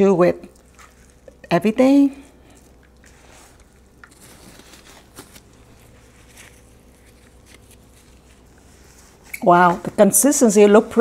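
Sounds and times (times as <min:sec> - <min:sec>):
dough scraping in a bowl: 0:03.0 - 0:11.0.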